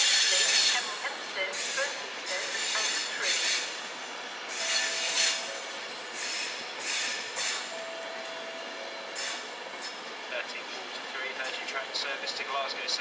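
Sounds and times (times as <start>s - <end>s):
train wheels squealing: 0.0s - 1.0s, 1.6s - 3.8s, 4.5s - 7.8s
electric train rolling: 0.0s - 13.0s.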